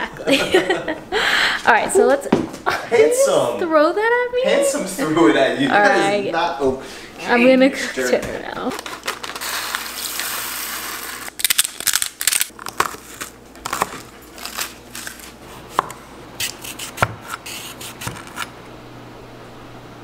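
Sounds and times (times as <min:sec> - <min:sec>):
knife cutting on cutting board: 0:13.7 - 0:18.5.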